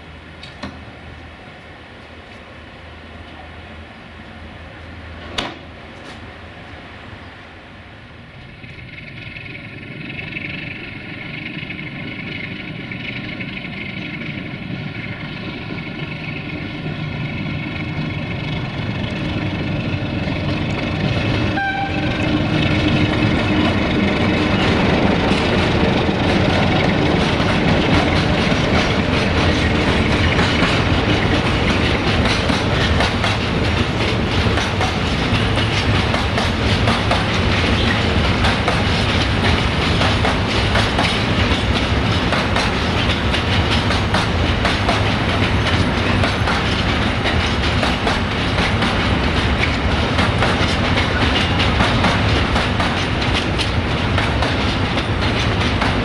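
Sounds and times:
diesel locomotive engine: 0:00.0 - 0:56.0
wagons clattering on track: 0:20.5 - 0:56.0.

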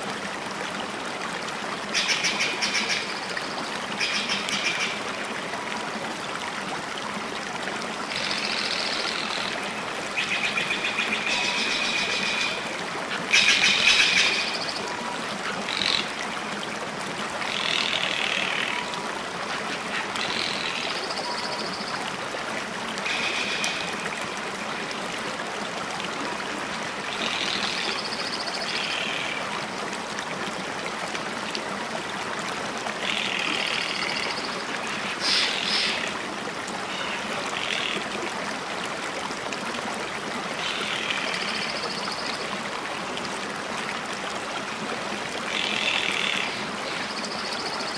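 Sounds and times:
water flowing in stream: 0:00.0 - 0:47.9.

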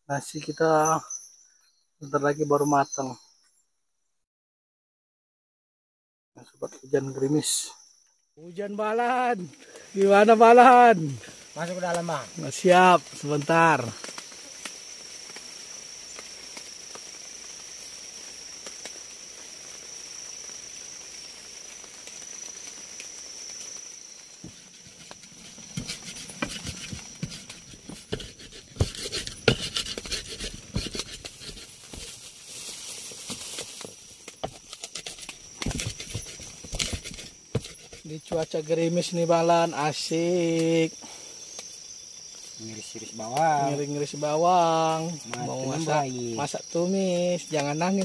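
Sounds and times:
high insect trill: 0:00.1 - 0:03.4, 0:06.4 - 0:48.0
soft hiss: 0:09.4 - 0:48.0
stone pestle knocking and scraping: 0:25.0 - 0:32.1, 0:34.4 - 0:38.4.

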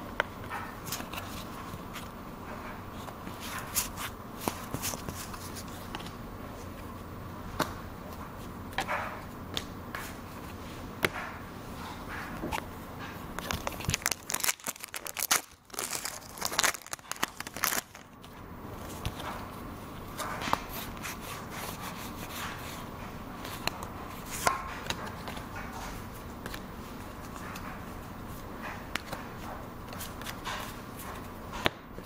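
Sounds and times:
cards being handled: 0:03.0 - 0:07.0, 0:13.3 - 0:22.8, 0:23.4 - 0:32.0
foil wrapper tearing and crinkling: 0:13.5 - 0:18.1.

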